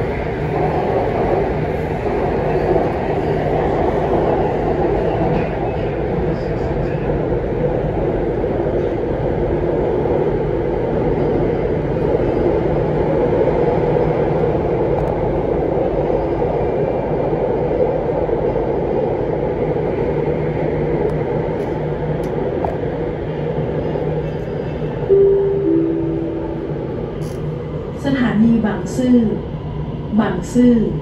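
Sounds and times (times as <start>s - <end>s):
metro car rumbling: 0.0s - 31.0s.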